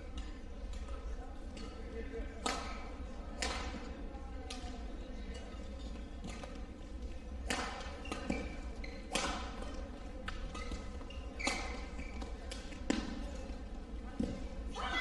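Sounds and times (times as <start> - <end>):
rackets striking shuttlecock: 7.4 - 13.2
shoes squeaking on court: 7.8 - 13.7.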